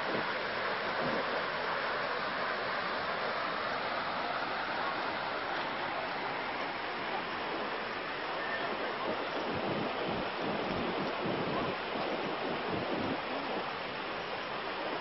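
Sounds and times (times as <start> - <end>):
floodwater rushing: 0.0 - 15.0.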